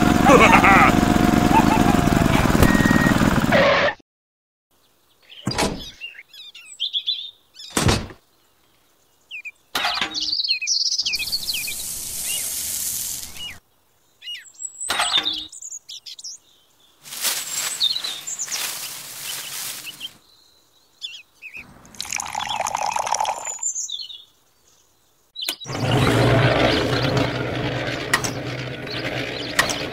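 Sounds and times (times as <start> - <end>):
birds chirping: 0.0 - 3.2, 4.8 - 29.9
powder pouring rush: 11.6 - 13.5, 21.9 - 23.6, 25.7 - 29.6.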